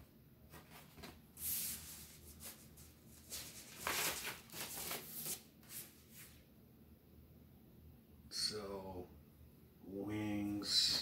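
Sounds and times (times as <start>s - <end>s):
paper sleeve and record rustling: 0.5s - 6.3s.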